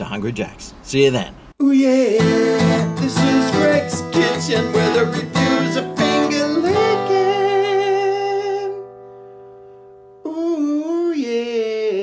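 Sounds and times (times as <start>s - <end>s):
man singing a jingle: 1.6s - 8.9s, 10.2s - 12.0s.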